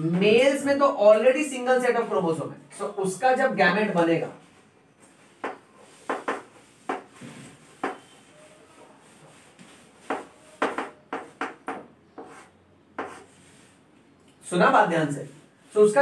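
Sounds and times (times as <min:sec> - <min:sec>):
chalk tapping and scraping on board: 0:05.4 - 0:08.2, 0:09.0 - 0:13.6.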